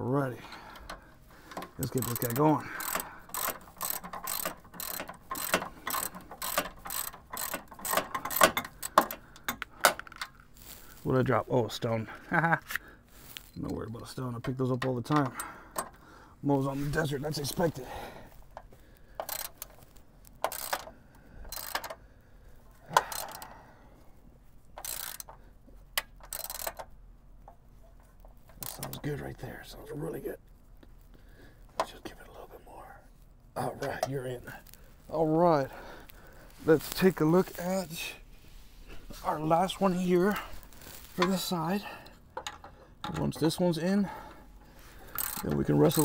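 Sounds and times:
ratchet wrench clicking: 0.7 - 10.2, 18.6 - 19.8, 20.4 - 22.0, 22.9 - 23.5, 24.8 - 25.4, 26.0 - 26.9, 28.5 - 28.9, 45.0 - 46.0.

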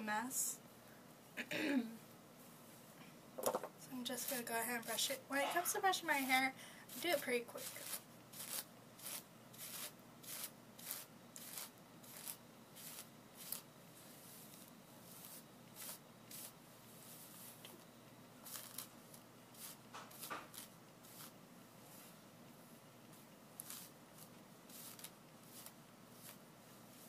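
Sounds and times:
hairbrush swishing through hair: 6.9 - 17.8, 18.4 - 18.9, 19.5 - 22.2, 23.6 - 27.0.

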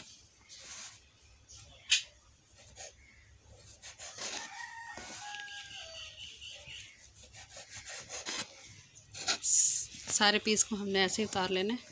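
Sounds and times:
rooster crowing: 4.1 - 6.3
knife scraping bread: 6.7 - 9.5.

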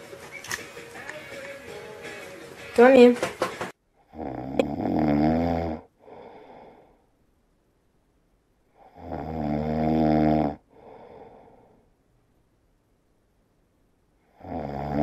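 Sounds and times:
kitten snoring: 4.1 - 6.8, 8.8 - 11.6, 14.3 - 15.0
soft out-breath: 6.0 - 7.1, 10.7 - 11.9.

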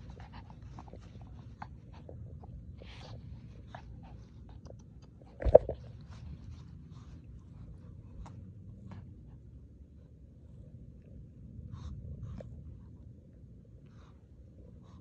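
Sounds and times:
small clicks and scuffs: 0.0 - 8.5
dog mouthing and chewing: 0.0 - 9.0.

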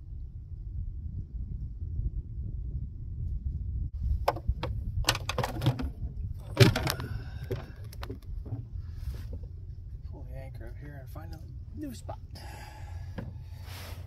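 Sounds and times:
steady low rumble: 0.0 - 14.0
knocks against a canoe hull: 4.2 - 8.7.

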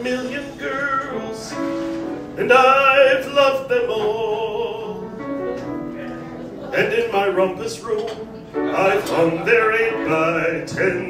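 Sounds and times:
man singing operatically: 0.0 - 1.6, 2.3 - 5.2, 6.7 - 11.0
piano accompaniment: 0.0 - 11.0.

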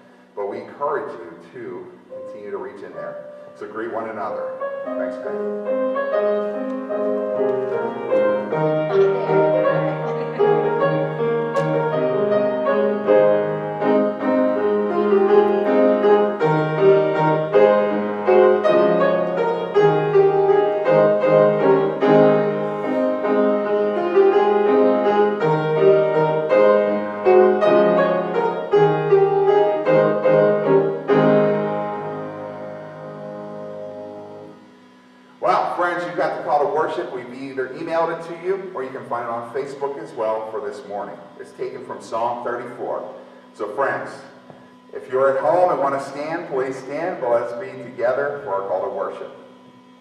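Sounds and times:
grand piano melody: 0.0 - 34.8.

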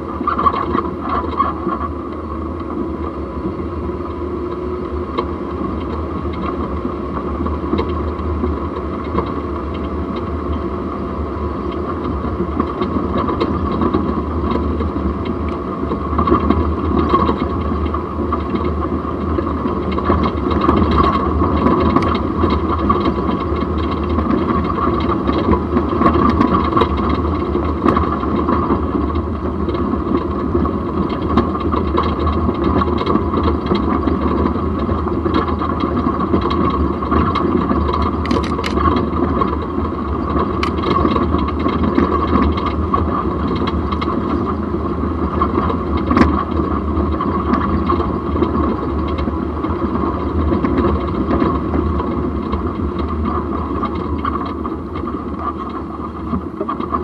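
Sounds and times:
jeep road and drivetrain noise: 0.0 - 57.0
small knocks and rattles: 11.7 - 44.6.

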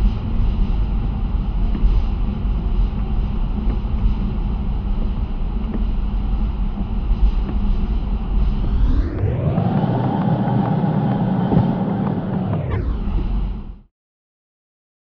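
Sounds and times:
rising sweep: 8.4 - 13.8
car driving on wet road: 9.6 - 12.6.

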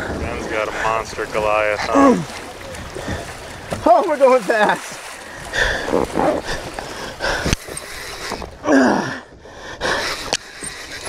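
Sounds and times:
man grunting and groaning: 1.8 - 2.4, 8.6 - 9.3.

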